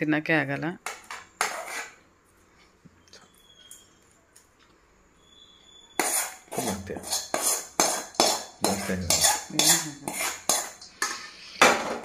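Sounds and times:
metal spoon scraping a steel bowl: 0:00.9 - 0:02.0, 0:06.0 - 0:11.5.

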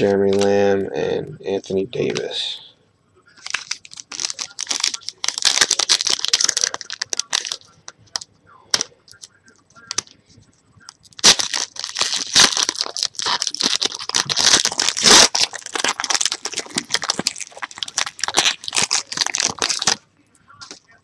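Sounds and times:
foil pack tearing and crinkling: 0:03.4 - 0:07.6, 0:11.1 - 0:20.0.

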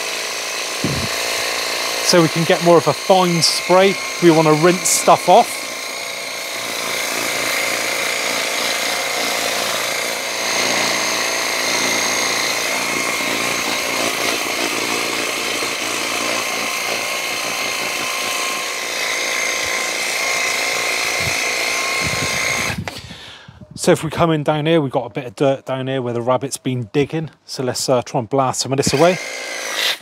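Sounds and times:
pressure washer pump whine: 0:00.0 - 0:23.0.

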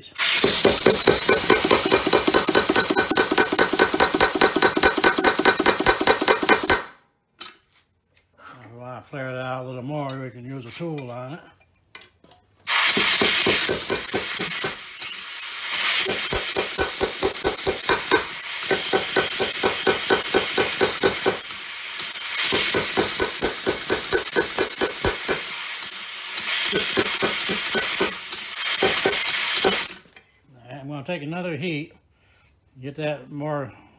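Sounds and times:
power hammer striking hot steel: 0:00.3 - 0:06.9, 0:12.7 - 0:30.0
compressed air exhaust hissing: 0:12.7 - 0:29.8.

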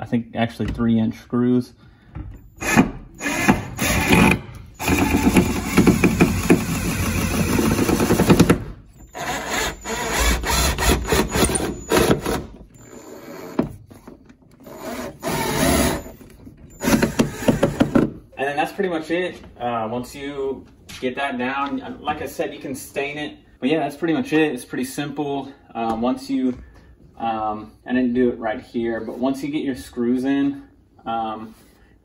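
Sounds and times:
impact driver driving screws into wood: 0:02.6 - 0:12.6, 0:14.6 - 0:16.2, 0:16.8 - 0:18.1.

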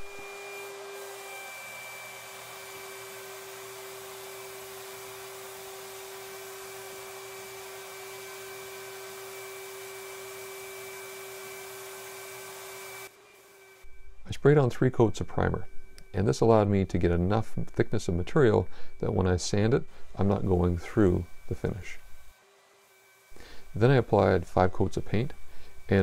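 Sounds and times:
steady whine: 0:13.0 - 0:22.4, 0:23.2 - 0:26.0.

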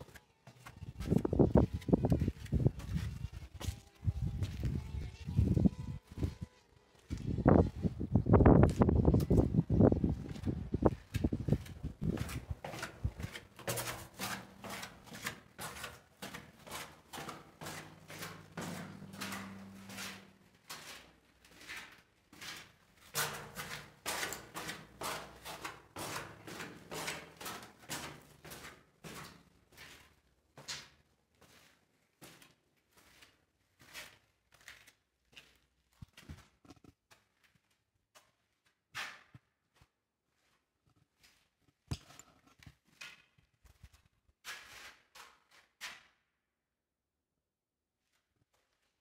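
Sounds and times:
footsteps on concrete: 0:00.0 - 0:05.0, 0:08.5 - 0:45.9.

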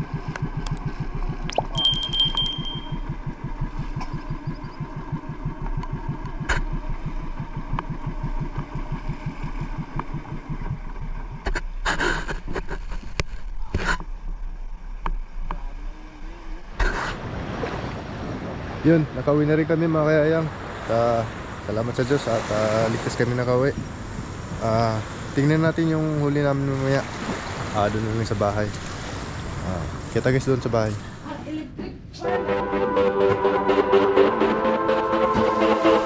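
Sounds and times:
small boat engine beating: 0:00.1 - 0:11.8.

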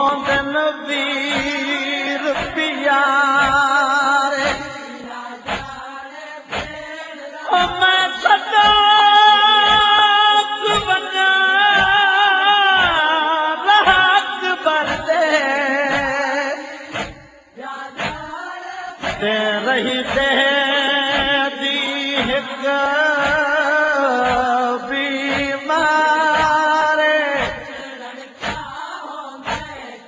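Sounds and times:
voices singing lament: 0:00.0 - 0:30.0
low thumping beat: 0:01.3 - 0:01.6, 0:02.3 - 0:02.6, 0:03.4 - 0:03.7, 0:04.4 - 0:04.8, 0:05.5 - 0:05.8, 0:06.5 - 0:06.8, 0:09.7 - 0:10.0, 0:21.1 - 0:21.4, 0:23.2 - 0:23.6, 0:24.2 - 0:24.5, 0:25.3 - 0:25.6, 0:26.3 - 0:26.7, 0:27.4 - 0:27.7, 0:28.4 - 0:28.8.

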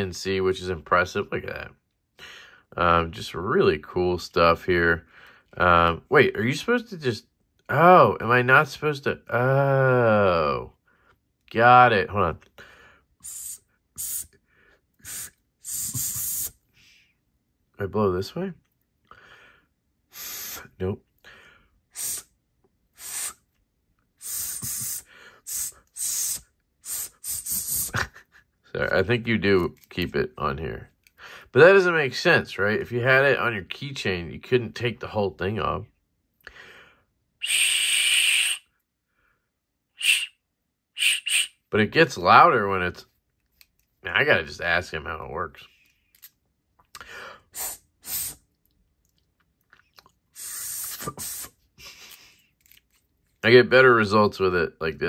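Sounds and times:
breath blown into whistle: 0:13.2 - 0:14.4, 0:15.0 - 0:16.6, 0:20.1 - 0:20.8, 0:21.9 - 0:22.3, 0:22.9 - 0:23.4, 0:24.2 - 0:28.0, 0:37.4 - 0:38.8, 0:40.0 - 0:40.4, 0:41.0 - 0:41.6, 0:47.5 - 0:48.4, 0:50.4 - 0:51.6.

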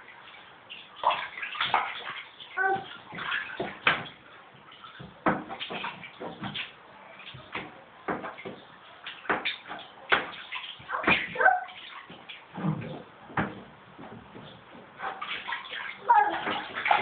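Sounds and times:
child splashing bathwater: 0:00.0 - 0:17.0
knocks against bathtub: 0:02.7 - 0:04.2, 0:05.0 - 0:08.6, 0:09.2 - 0:15.6.

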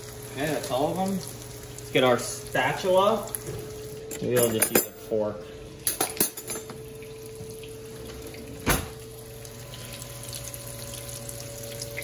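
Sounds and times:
fish frying in oil: 0:00.0 - 0:04.1, 0:06.8 - 0:12.0.

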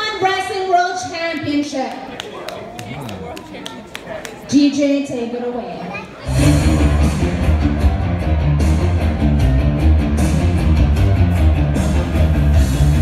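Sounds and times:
rock music over speakers: 0:06.2 - 0:13.0.

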